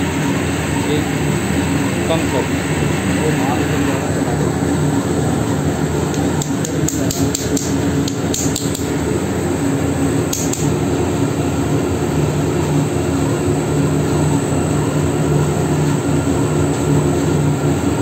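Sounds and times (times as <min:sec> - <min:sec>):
roll mill machine drone: 0:00.0 - 0:18.0
sharp clicks: 0:06.1 - 0:08.9, 0:10.3 - 0:10.7.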